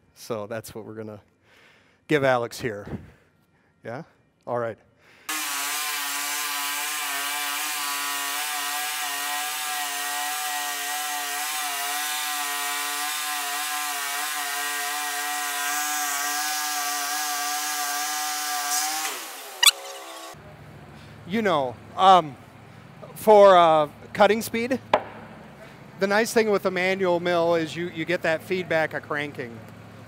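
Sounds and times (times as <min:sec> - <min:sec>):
band sawmill cutting a log: 0:05.3 - 0:20.4.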